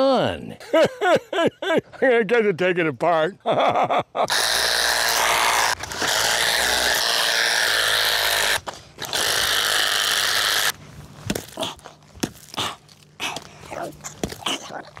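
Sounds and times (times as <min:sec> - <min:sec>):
handheld power tool running: 0:04.3 - 0:10.8.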